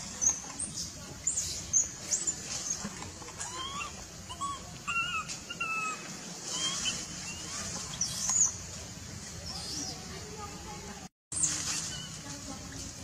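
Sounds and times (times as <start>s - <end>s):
baby monkey squealing: 3.4s - 8.6s, 11.4s - 12.2s.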